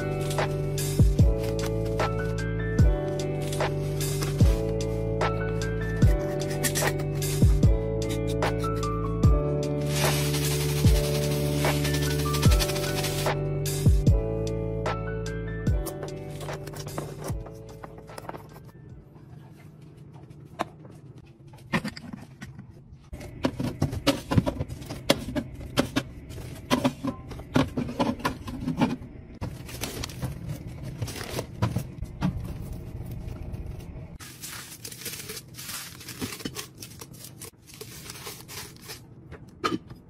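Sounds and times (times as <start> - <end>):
rustling or tearing: 9.8 - 13.3, 34.2 - 39.0
packaging clicks and crinkles: 34.2 - 39.0.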